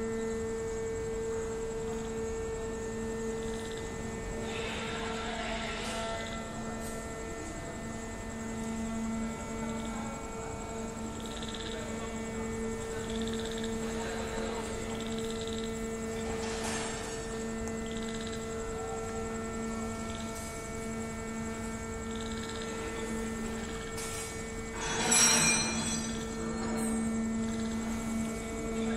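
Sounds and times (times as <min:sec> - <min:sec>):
machinery electric hum: 0:00.0 - 0:28.9.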